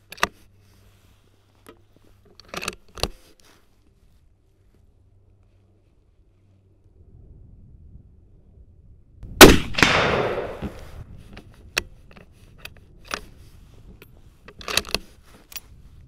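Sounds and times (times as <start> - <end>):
rifle shot echoing: 9.4 - 11.0.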